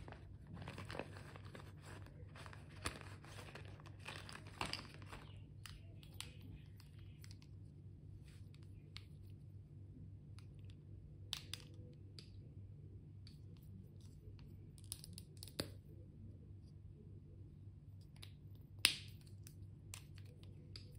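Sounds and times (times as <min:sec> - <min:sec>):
low steady hum: 0:00.0 - 0:20.9
plastic pens clicking: 0:14.8 - 0:15.8.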